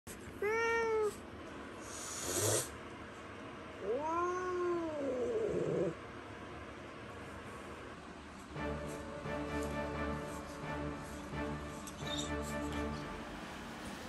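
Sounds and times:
cat meowing: 0.4s - 1.2s, 3.8s - 5.9s.

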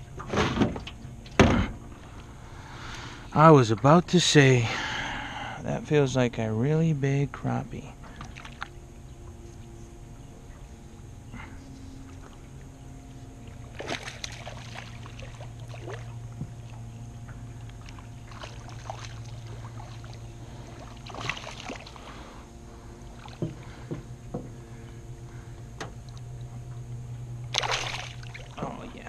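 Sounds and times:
steady low hum: 0.0s - 29.0s
fish splashing at water surface: 13.6s - 16.8s, 17.6s - 22.4s, 27.4s - 28.7s.

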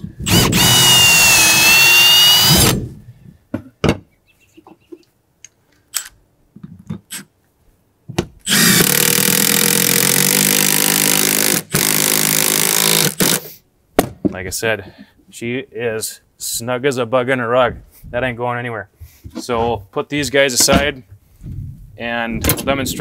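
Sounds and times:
cordless drill running: 0.2s - 2.8s, 8.5s - 13.4s.

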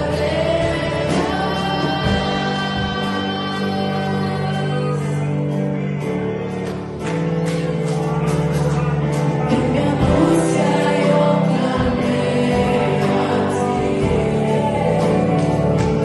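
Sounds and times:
woman singing: 0.0s - 5.6s, 9.4s - 16.0s
bass line: 0.0s - 16.0s
worship band playing gospel: 0.0s - 16.0s.

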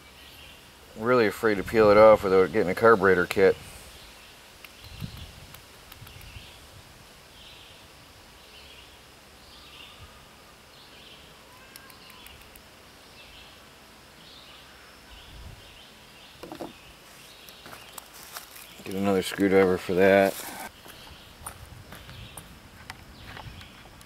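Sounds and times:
light clicks of small parts: 4.6s - 6.4s
faint high chirp: 10.9s - 12.6s.

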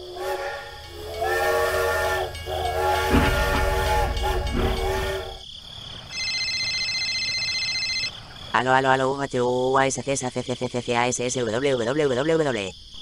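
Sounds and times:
toy steam train whistle: 0.0s - 5.4s
low rumble: 0.8s - 5.4s.

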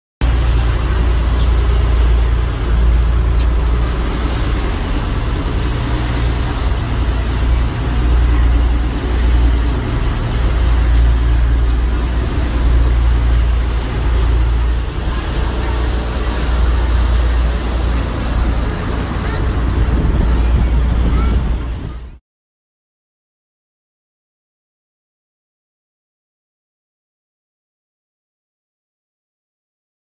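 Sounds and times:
boat engine drone: 0.2s - 22.2s
rushing wake wash: 0.2s - 22.2s.

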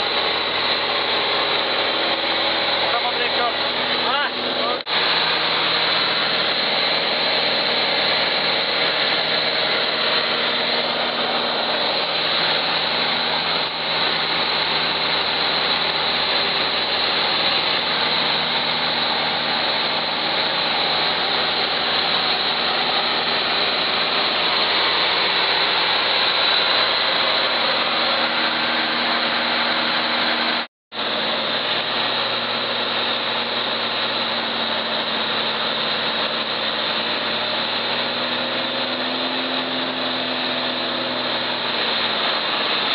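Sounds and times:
small plane engine drone: 0.0s - 42.9s.

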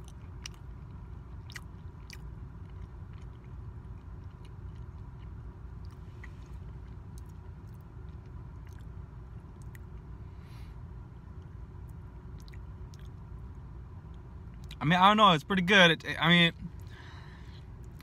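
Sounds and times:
person chewing pastry: 0.0s - 10.2s, 12.3s - 13.2s
crunchy mouth clicks: 1.4s - 8.9s, 12.4s - 13.2s.

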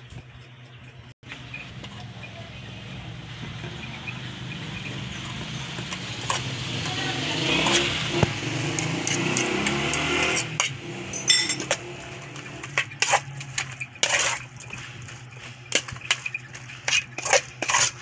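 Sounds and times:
metal spoon scraping metal bowl: 4.5s - 18.0s
wet mixture being stirred: 4.6s - 18.0s.

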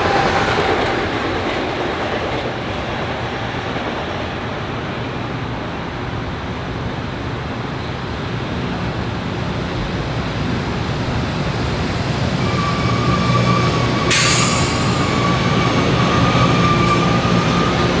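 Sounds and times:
electric train rumbling past: 0.0s - 18.0s
high-pitched whine: 14.1s - 17.2s.

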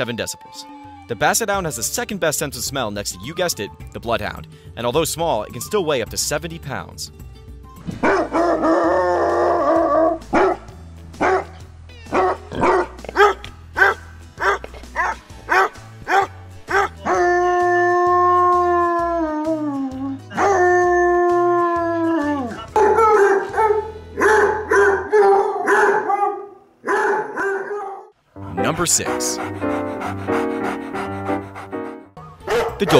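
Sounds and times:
dogs howling: 0.3s - 1.4s, 8.0s - 28.1s
dogs baying and barking: 7.9s - 28.2s, 29.2s - 32.9s.

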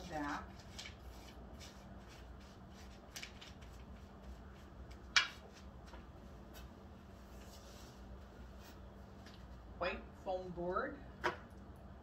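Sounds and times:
crisp paper rustle: 0.0s - 4.5s
paper rustling: 0.0s - 6.7s
steady low hum: 0.0s - 12.0s.

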